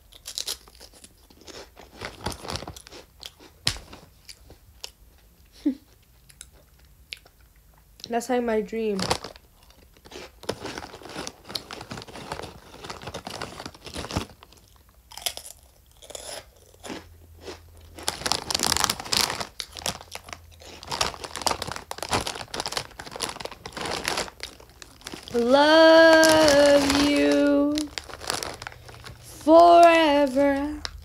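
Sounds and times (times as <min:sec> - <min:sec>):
plastic packet crinkling: 0:00.0 - 0:03.1, 0:08.9 - 0:15.2, 0:17.8 - 0:31.0
chips being chewed: 0:00.0 - 0:05.3, 0:05.9 - 0:08.1, 0:09.0 - 0:31.0.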